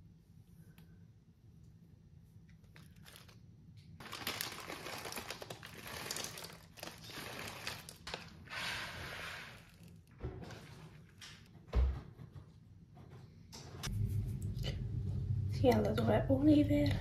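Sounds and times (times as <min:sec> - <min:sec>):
plastic packets crinkling: 0:02.6 - 0:08.5, 0:09.1 - 0:11.2.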